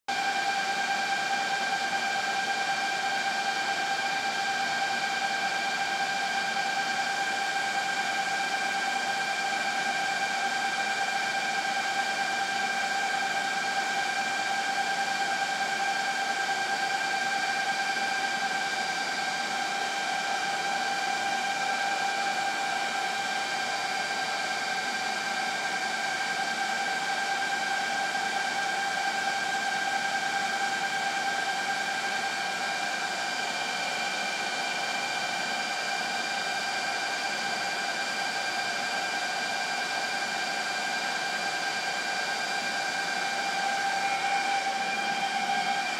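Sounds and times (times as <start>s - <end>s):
high fan whine: 0.1s - 45.9s.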